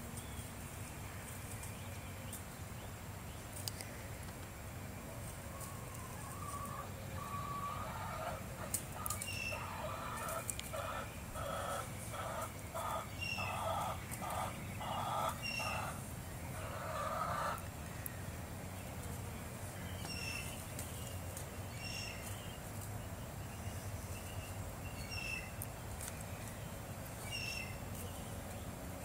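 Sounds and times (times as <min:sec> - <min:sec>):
hen clucking: 0:05.5 - 0:17.7.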